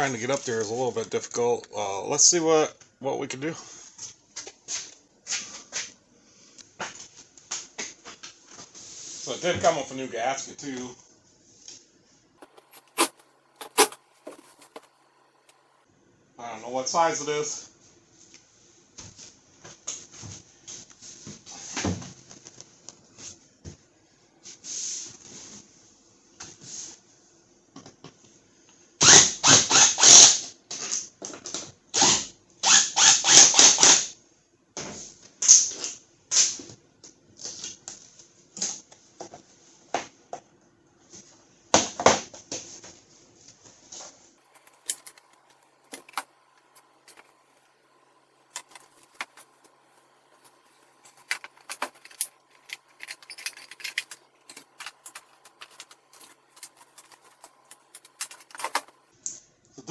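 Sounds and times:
cordless drill-driver bursts: 0:29.0 - 0:30.4, 0:32.6 - 0:34.0.

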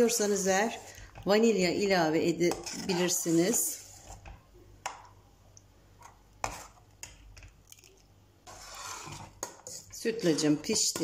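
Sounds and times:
ladle stirring thick pudding: 0:00.0 - 0:11.0.

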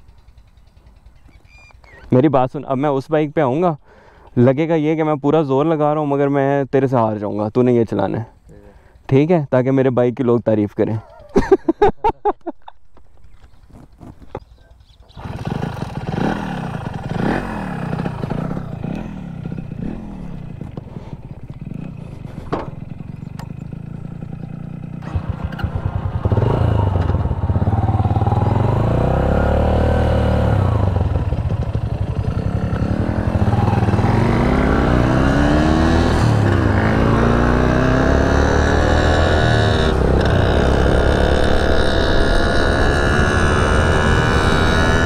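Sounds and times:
closer motorcycle accelerating: 0:00.0 - 0:03.8, 0:13.2 - 0:45.0
two-stroke motorcycle revving: 0:15.1 - 0:45.0.

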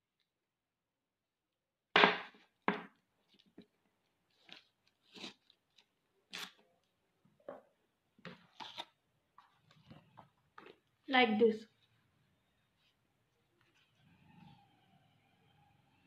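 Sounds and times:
paper crinkling and rustling: 0:03.2 - 0:06.9.

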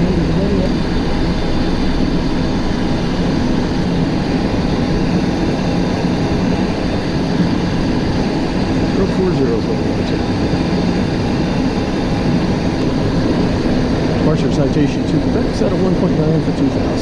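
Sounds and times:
jet engines in flight: 0:00.0 - 0:17.0
low hum: 0:00.0 - 0:17.0.

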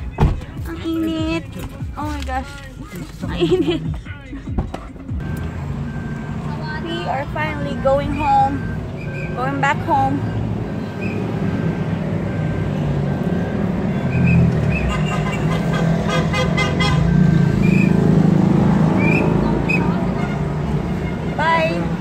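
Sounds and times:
car driving rumble from inside: 0:00.0 - 0:22.0
short horn toots: 0:14.2 - 0:17.2.

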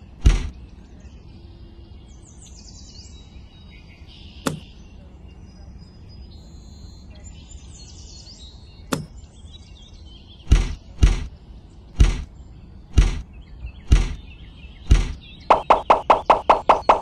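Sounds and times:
faint birdsong: 0:00.0 - 0:17.0
sharp click: 0:04.4 - 0:04.7, 0:08.9 - 0:09.2.

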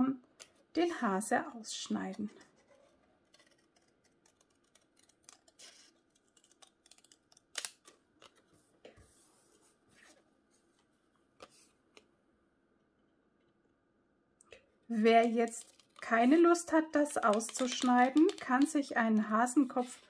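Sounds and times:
scissors snipping paper: 0:02.4 - 0:08.4, 0:17.0 - 0:20.0.

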